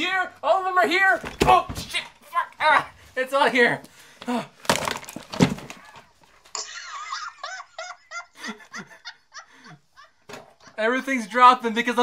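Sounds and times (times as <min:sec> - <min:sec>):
man laughing: 0:06.6 - 0:11.5.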